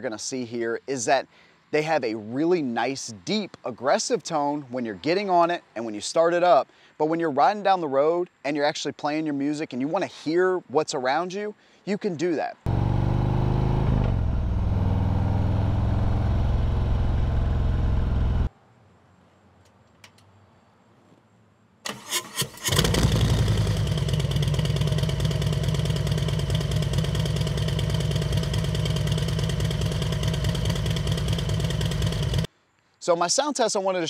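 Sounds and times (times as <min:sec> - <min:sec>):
motorcycle engine running: 0:12.7 - 0:18.5, 0:22.7 - 0:32.5
starter cranking: 0:21.9 - 0:32.5
motorcycle engine idling: 0:22.9 - 0:32.5.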